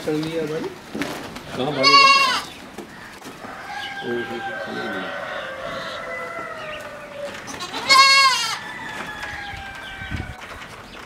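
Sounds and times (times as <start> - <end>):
goats bleating: 1.7 - 2.5, 4.2 - 8.7.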